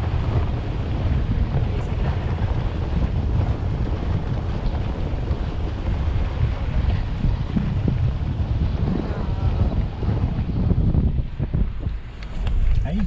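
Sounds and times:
vehicle rumbling on dirt track: 0.0s - 13.0s
wind noise on microphone: 0.0s - 13.0s.

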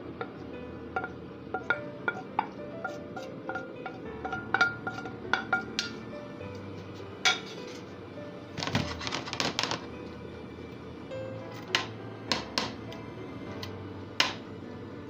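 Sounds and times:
background music: 0.0s - 15.0s
utensil clinking and scraping pan: 0.2s - 6.1s, 6.8s - 7.9s, 8.6s - 9.9s.

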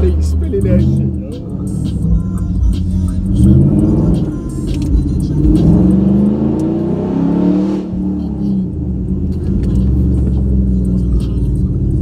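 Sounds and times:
car engines accelerating hard: 0.0s - 12.0s.

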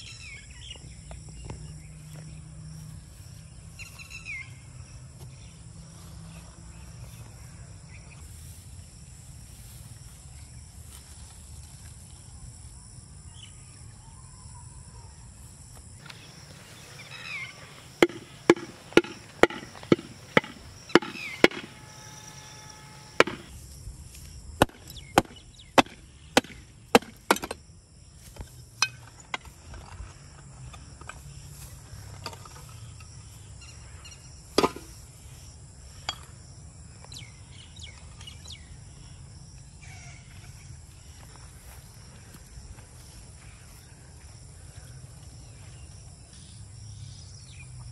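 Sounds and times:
stone knocking on flowerpot: 17.9s - 23.5s.

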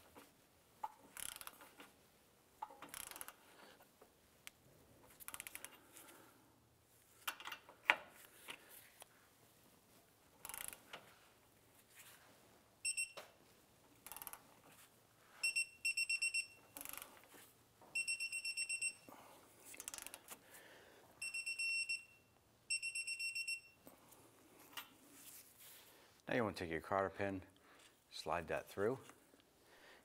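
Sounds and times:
wrench clicks: 1.2s - 1.6s, 2.6s - 3.4s, 5.2s - 5.7s, 10.4s - 10.9s, 14.0s - 14.4s, 16.8s - 17.1s, 19.8s - 20.2s
high-pitched torque wrench beeps: 12.8s - 13.2s, 15.4s - 17.0s, 18.0s - 19.1s, 21.2s - 23.8s.

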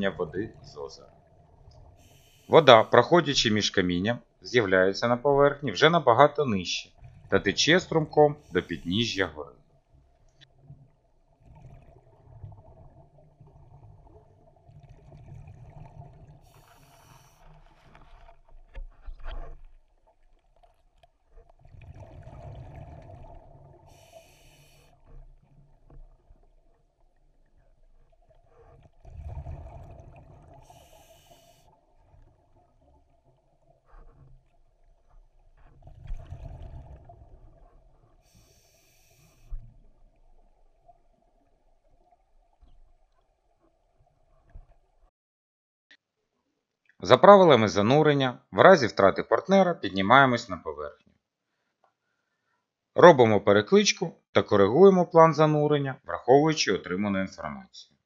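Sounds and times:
exhaled bubbles rushing: 21.6s - 24.1s, 28.5s - 30.9s, 35.8s - 38.0s
regulator valve hissing: 24.0s - 24.9s, 30.7s - 31.6s.

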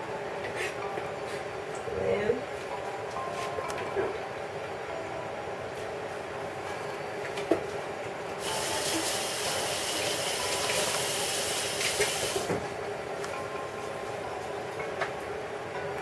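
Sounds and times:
water running from a tap: 8.4s - 12.5s.

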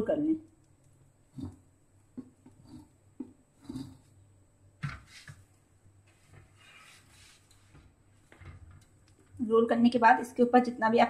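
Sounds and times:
soft wet rustling: 4.9s - 9.4s.

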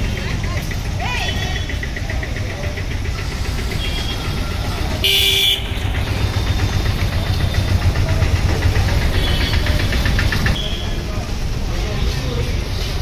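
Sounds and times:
vehicle engine rumbling: 0.0s - 13.0s
horn toot: 5.0s - 5.8s.

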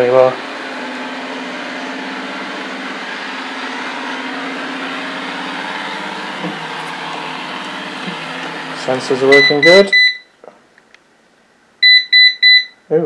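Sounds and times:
robot vacuum whirring hum: 0.0s - 9.8s.

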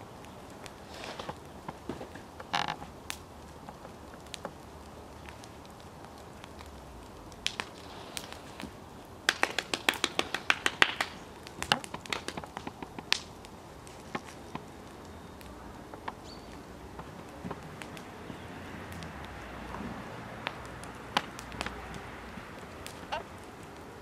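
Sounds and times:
sharp taps or claps: 9.3s - 13.3s.

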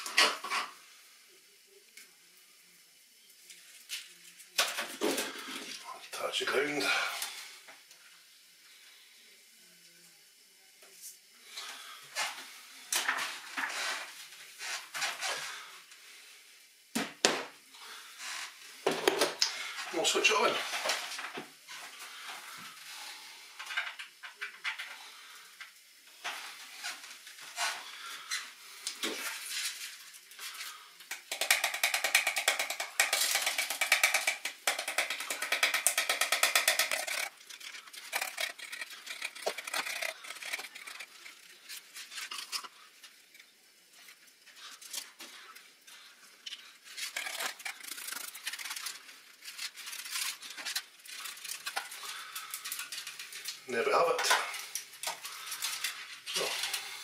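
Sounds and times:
grass fibres rattling against mesh: 30.7s - 42.8s, 44.6s - 57.0s.

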